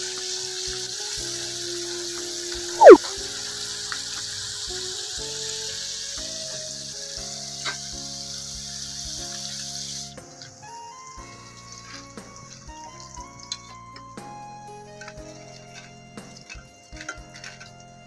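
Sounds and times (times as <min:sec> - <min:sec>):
fish deep-frying in oil: 0:00.0 - 0:18.0
background music of held tones: 0:10.2 - 0:18.0.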